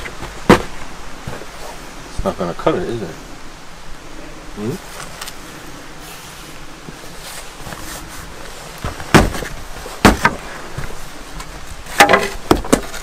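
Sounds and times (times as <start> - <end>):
wooden post knocks: 0.0 - 0.9, 8.8 - 10.9, 11.9 - 13.0.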